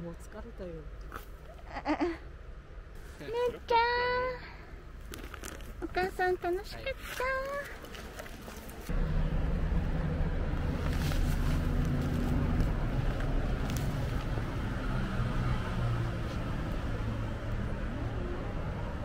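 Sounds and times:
vehicle engine humming: 0:00.0 - 0:19.0.

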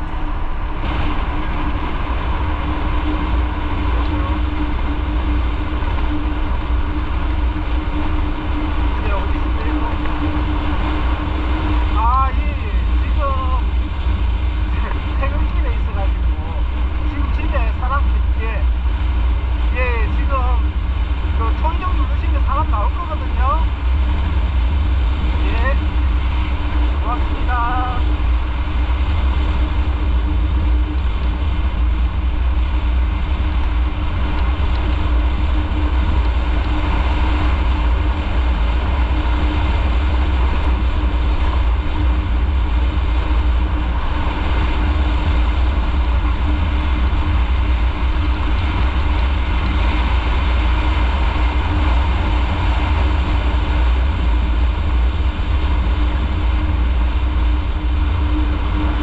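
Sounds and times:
motorcycle engine running: 0:00.0 - 0:59.0
road and wind rumble: 0:00.0 - 0:59.0.

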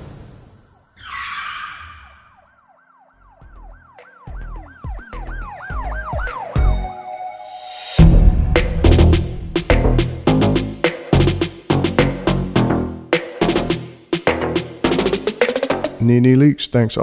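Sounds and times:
siren-like sound effect yelping: 0:01.0 - 0:03.4
music with heavy bass hits: 0:08.0 - 0:16.0.

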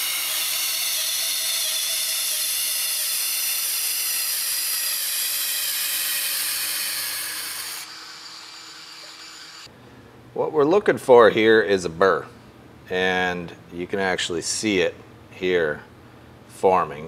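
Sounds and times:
knife grinding on belt grinder: 0:00.0 - 0:09.7.

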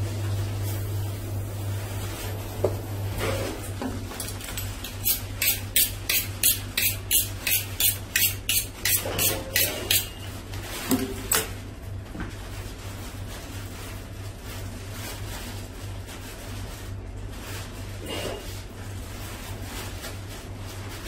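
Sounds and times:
knife honing on steel: 0:04.9 - 0:10.3.

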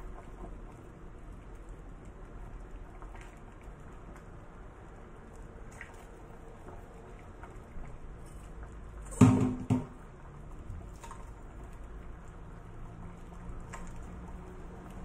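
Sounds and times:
metal ladle knocking on pot: 0:09.1 - 0:10.0.

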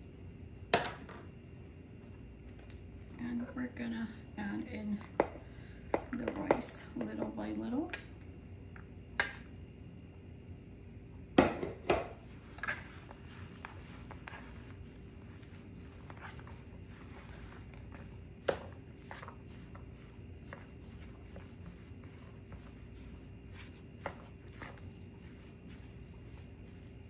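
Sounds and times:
faint steady hum: 0:00.0 - 0:27.0
spoon stirring in plastic bowl: 0:04.9 - 0:08.0, 0:11.4 - 0:27.0.

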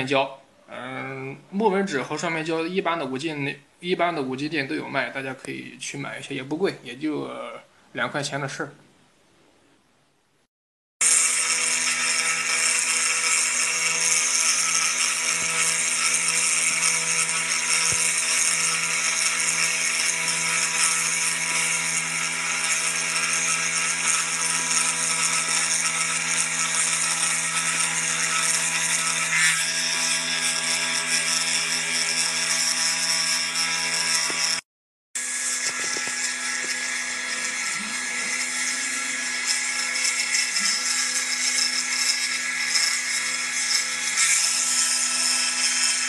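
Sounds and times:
engraving spindle whine: 0:11.0 - 0:34.6, 0:35.2 - 0:46.0
wood cutting hiss: 0:35.2 - 0:38.9.

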